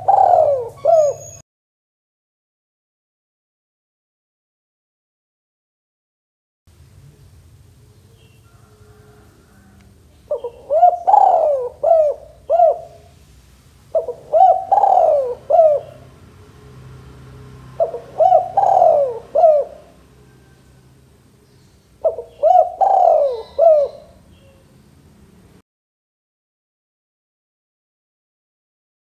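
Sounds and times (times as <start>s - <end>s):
dove cooing: 0.0s - 1.4s, 8.4s - 13.2s, 13.9s - 16.1s, 17.7s - 20.8s, 22.0s - 24.7s.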